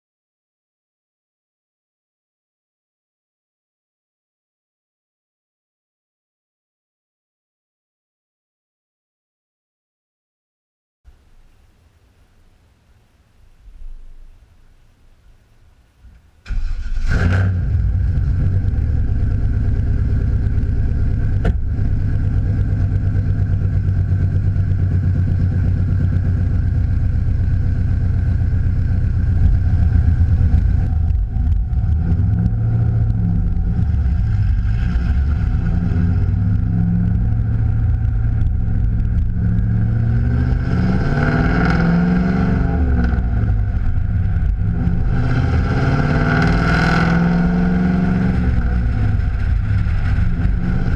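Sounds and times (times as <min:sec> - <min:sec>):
car engine starting and idling: 0:11.1 - 0:46.6
car accelerating through gears: 0:16.5 - 0:19.6, 0:31.6 - 0:43.3, 0:44.6 - 0:48.7.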